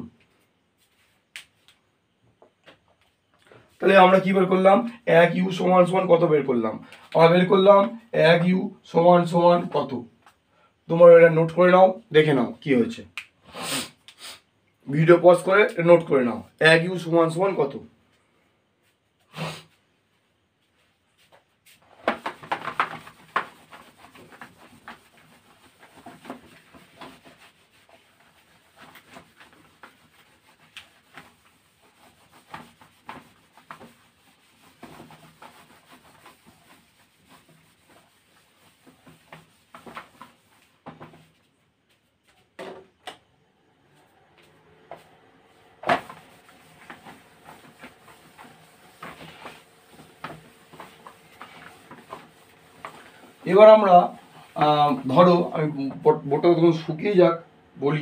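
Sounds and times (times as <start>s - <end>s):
board being wiped with cloth: 0.4s - 1.7s, 18.8s - 42.6s, 43.8s - 57.4s.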